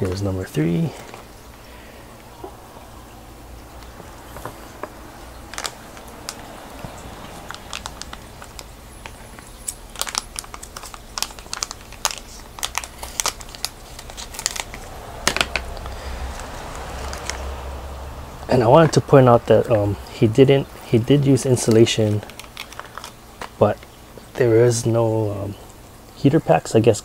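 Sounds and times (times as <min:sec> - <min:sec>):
plastic bag crinkling: 0:00.0 - 0:01.8, 0:03.8 - 0:17.6, 0:20.9 - 0:24.4.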